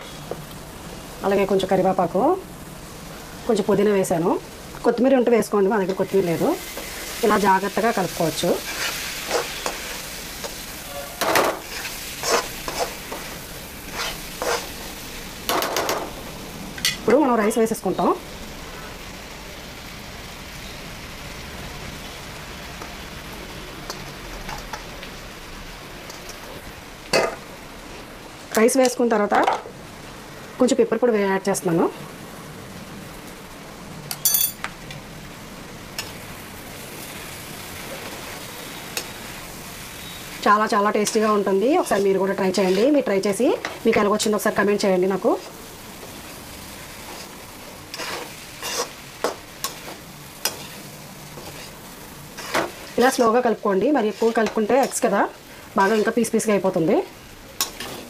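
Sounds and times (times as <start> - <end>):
food sizzling: 0.0 - 58.0
metal spoon scraping pan: 8.6 - 13.3, 13.9 - 14.7, 41.0 - 43.0, 47.1 - 55.1, 55.8 - 56.3, 57.6 - 58.0.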